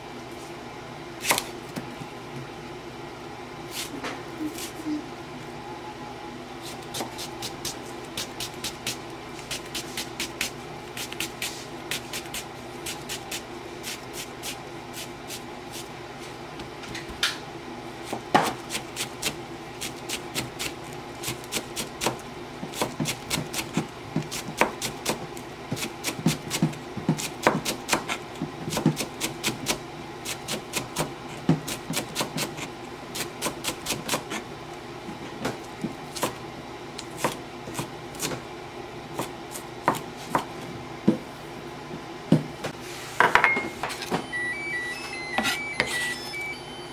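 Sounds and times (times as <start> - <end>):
knife chopping on cutting board: 18.1 - 19.4, 20.1 - 32.7, 39.2 - 40.5.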